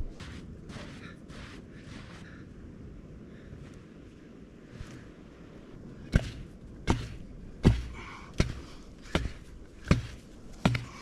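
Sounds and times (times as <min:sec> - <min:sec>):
coral striking hard sand: 0:06.1 - 0:11.0.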